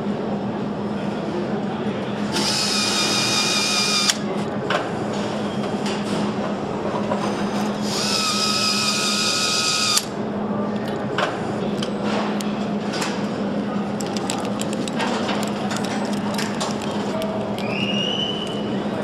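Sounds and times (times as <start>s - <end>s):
low factory hum: 0.0s - 19.0s
power screwdriver whining: 2.4s - 4.2s, 7.8s - 10.1s.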